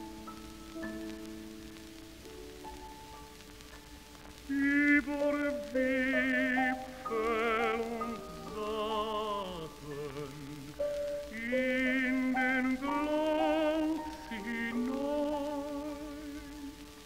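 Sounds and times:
piano accompaniment: 0:00.0 - 0:17.0
tenor singing: 0:04.4 - 0:17.0.

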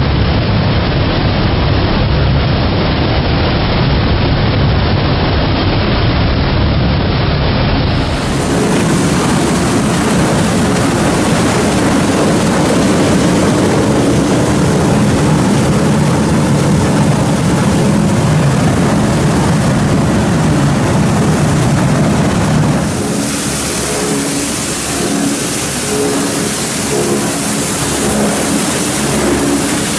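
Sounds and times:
recycling machinery running: 0:00.0 - 0:29.9
bright hiss: 0:22.8 - 0:29.9.

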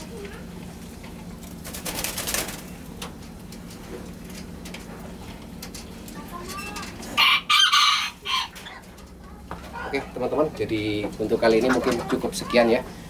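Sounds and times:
chicken calling: 0:06.6 - 0:09.0.

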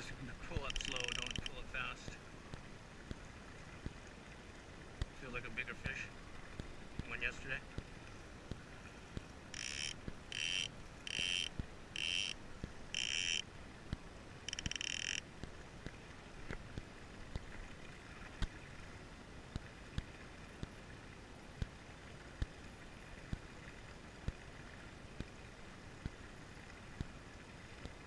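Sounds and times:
fishing reel drag buzzing: 0:00.6 - 0:01.6, 0:09.5 - 0:13.4, 0:14.5 - 0:15.2.

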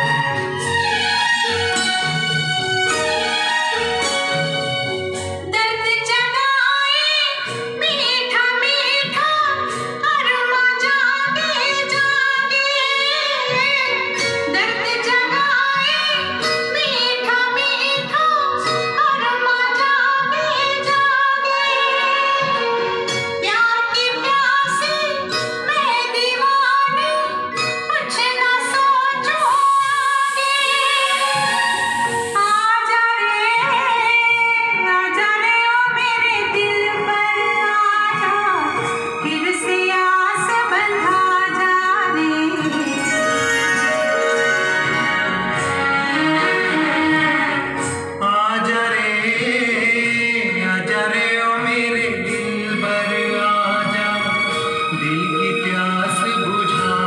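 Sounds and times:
vinyl record music with woman singing: 0:05.5 - 0:43.1.

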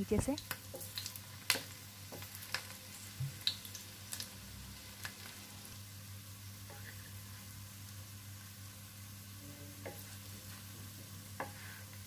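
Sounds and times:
food sizzling in oil: 0:00.0 - 0:12.0
small pops and crackles: 0:00.2 - 0:04.3.

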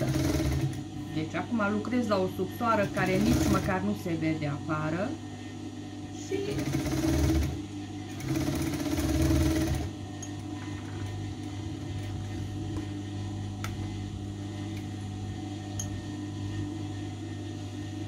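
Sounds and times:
sewing machine stitching: 0:00.0 - 0:00.8, 0:02.8 - 0:03.7, 0:06.5 - 0:07.6, 0:08.2 - 0:09.9
steady electric hum: 0:00.0 - 0:18.0.

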